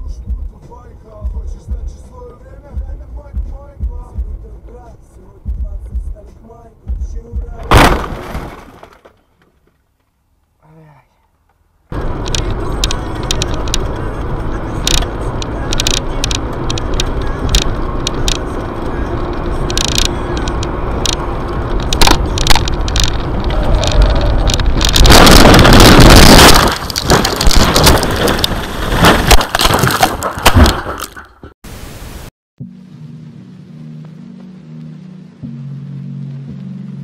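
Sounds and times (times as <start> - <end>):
car road and engine noise: 0.0 - 31.5, 32.7 - 37.0
car crashing thuds and crunches: 7.6 - 9.7, 21.8 - 31.3
sharp clicks: 11.5 - 31.2
loud rushing noise: 20.6 - 29.4.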